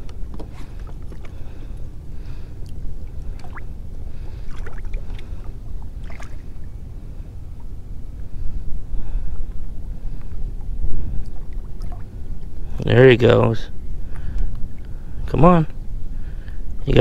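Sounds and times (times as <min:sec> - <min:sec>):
steady low rumble: 0:00.0 - 0:17.0
shallow water splashing: 0:00.4 - 0:07.8, 0:10.6 - 0:12.5.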